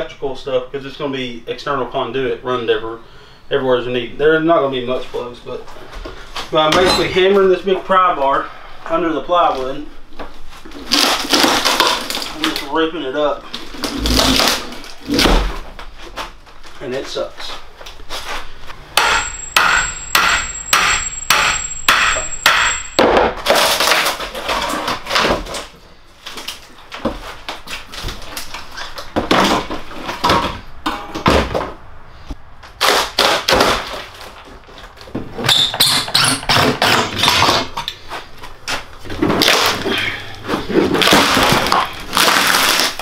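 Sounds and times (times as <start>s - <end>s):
plywood cracking and splintering: 10.7s - 12.7s, 13.5s - 15.6s, 23.4s - 25.7s, 32.7s - 35.1s, 38.7s - 40.0s, 40.6s - 43.0s
pry bar striking with metal ring: 19.0s - 23.2s.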